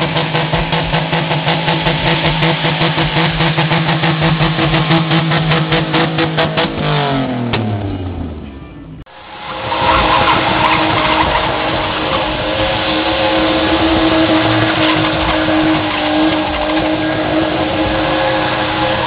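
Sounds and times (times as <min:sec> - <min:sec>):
car engine at high revs: 0:00.0 - 0:08.4, 0:09.1 - 0:19.0
tyres squealing: 0:08.4 - 0:19.0.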